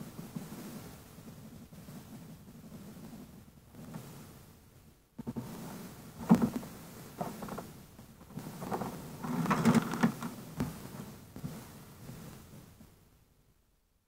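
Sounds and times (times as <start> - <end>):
rustling and shuffling at a desk: 0.0 - 13.2.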